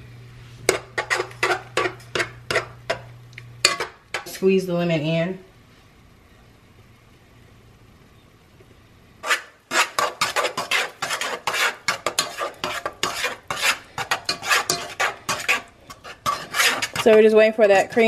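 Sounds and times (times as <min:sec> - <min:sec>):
spoon stirring and scraping a metal pot: 0:00.6 - 0:04.4, 0:09.2 - 0:18.0.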